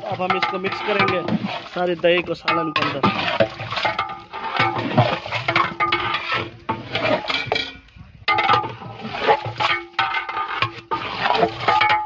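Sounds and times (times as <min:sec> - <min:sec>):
ladle scraping and stirring in pot: 0:00.0 - 0:12.0.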